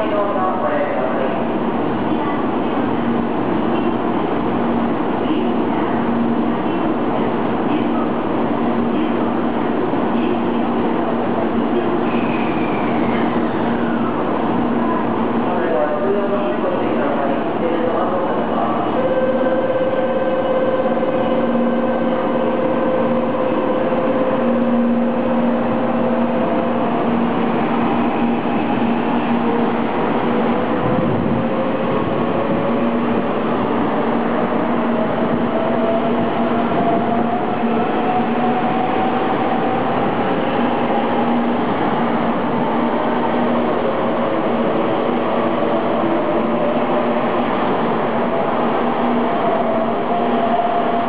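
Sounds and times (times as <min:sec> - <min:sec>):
train cars running noise: 0:00.0 - 0:51.0.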